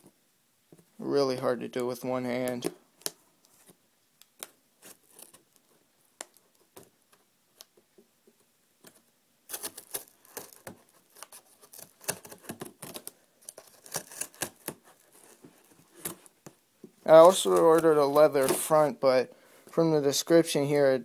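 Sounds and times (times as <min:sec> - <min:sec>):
knife cutting packing tape: 0:09.5 - 0:15.0.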